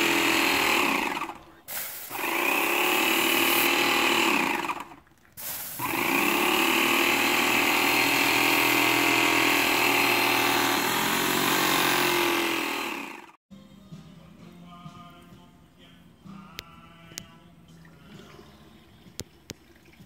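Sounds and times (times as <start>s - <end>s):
paint sprayer pump motor running: 0.0s - 5.0s, 5.8s - 13.4s.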